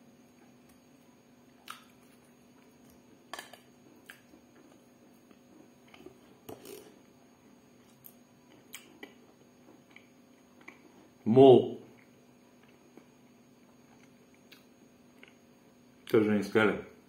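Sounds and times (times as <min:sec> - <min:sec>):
low steady hum: 0:00.0 - 0:17.0
quiet chewing: 0:00.3 - 0:11.2, 0:11.8 - 0:15.4
soft eating clicks and taps: 0:07.8 - 0:11.0.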